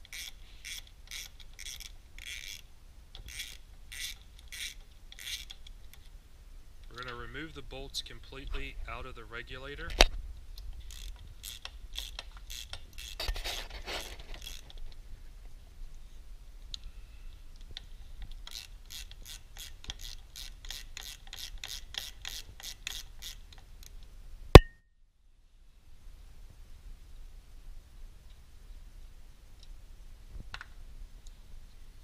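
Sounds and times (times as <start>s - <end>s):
ratchet wrench clicking: 0.0s - 5.7s, 10.8s - 13.3s, 14.0s - 14.7s, 18.4s - 23.5s.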